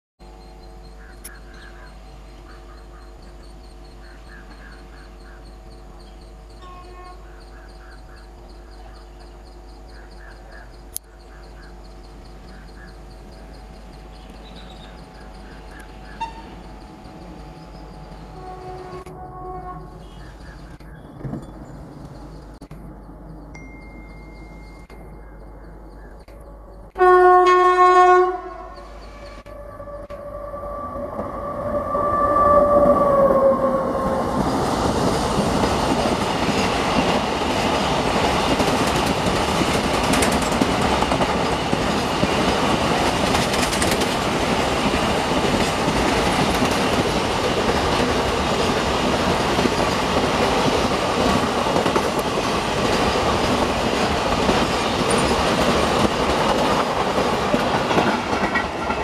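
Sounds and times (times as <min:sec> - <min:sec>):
train wheels rolling on rails: 0:00.2 - 0:27.6, 0:28.2 - 0:59.0
approaching train noise: 0:00.2 - 0:59.0
locomotive horn blast: 0:06.6 - 0:07.3, 0:16.1 - 0:16.7, 0:18.3 - 0:20.4, 0:27.0 - 0:34.4.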